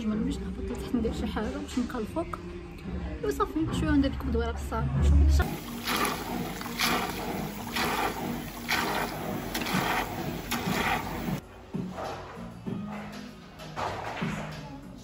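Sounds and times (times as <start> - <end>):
tap water splashing into basin: 5.4 - 11.4.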